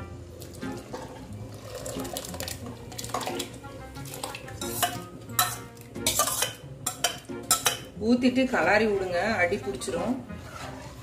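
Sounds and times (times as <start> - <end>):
ladle scraping steel bowl: 0.8 - 7.9, 9.8 - 11.0.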